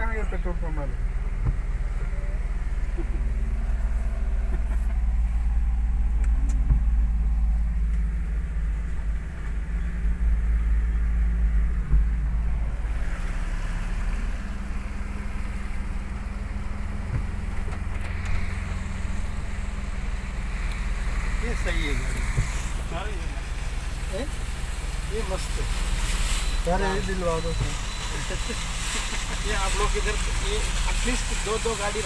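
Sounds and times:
vehicle engine and road rumble: 0.0s - 32.0s
water rushing and splashing: 12.0s - 32.0s.

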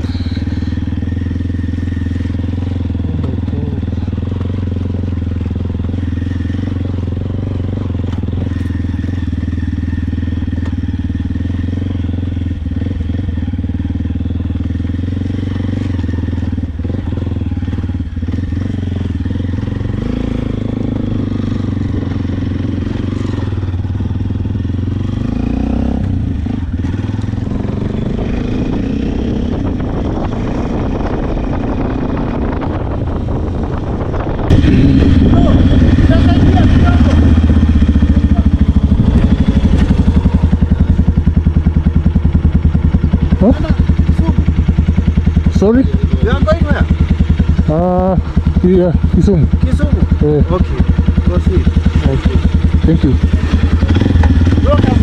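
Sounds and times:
motorcycle engine running: 0.0s - 55.0s
road noise: 0.0s - 55.0s.

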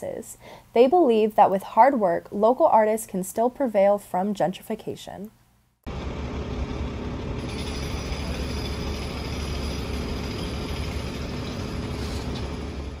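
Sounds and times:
low rumble: 5.9s - 13.0s.

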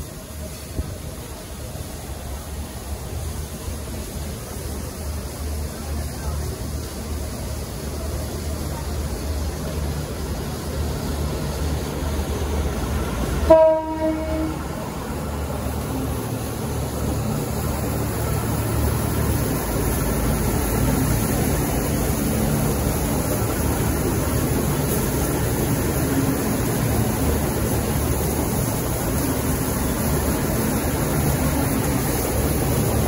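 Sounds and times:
diesel train engines and wheels: 0.0s - 33.0s
low train horn blast: 13.4s - 14.8s.

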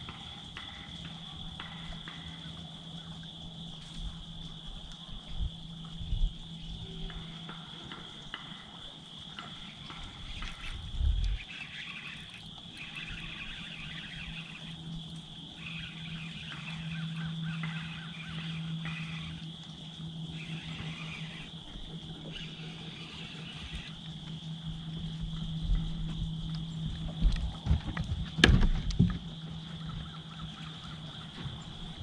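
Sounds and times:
chorus of small animals: 0.0s - 32.0s
low steady hum: 0.0s - 32.0s
high chirring: 9.4s - 26.9s.

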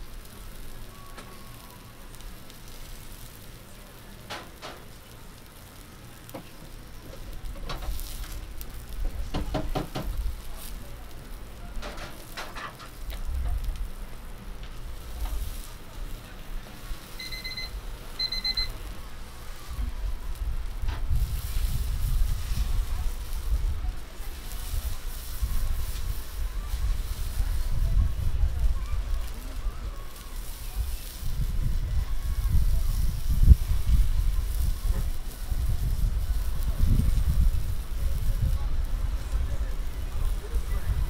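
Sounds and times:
skewers sizzling on grill: 0.0s - 41.0s
short electronic beeps: 17.2s - 18.8s.

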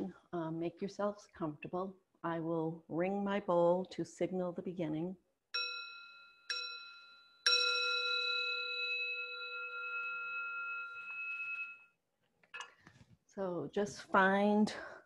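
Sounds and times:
metal singing bowl ringing: 5.6s - 11.9s.

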